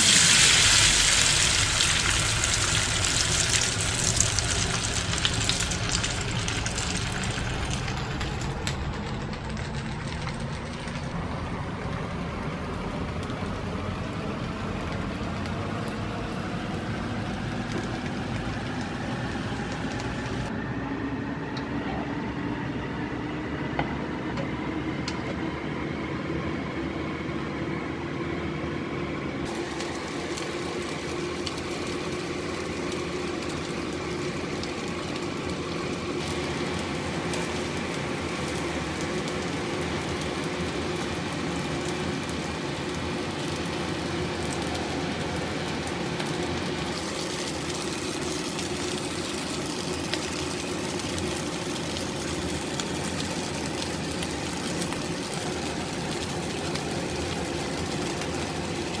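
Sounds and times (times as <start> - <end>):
rice sizzling in a wok: 0.0 - 10.0, 29.4 - 59.0
mechanical hum: 0.0 - 59.0.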